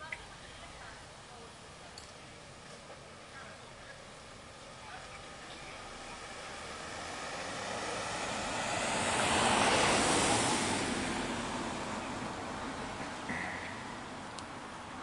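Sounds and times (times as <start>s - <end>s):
vehicle passing: 4.2s - 15.0s.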